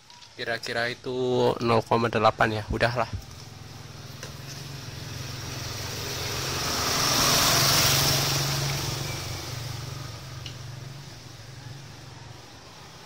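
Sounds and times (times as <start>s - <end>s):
vehicle passing by: 3.2s - 13.0s.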